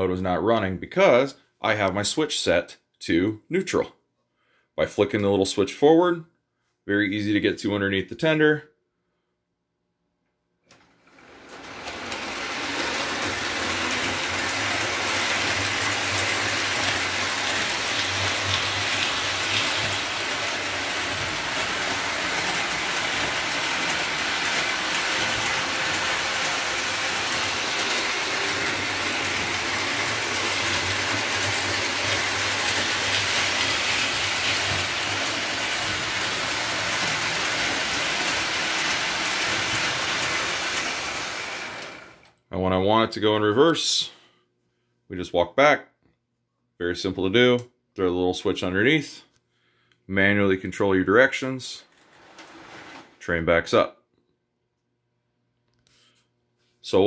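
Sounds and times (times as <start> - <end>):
model train rolling on track: 10.7 - 42.3.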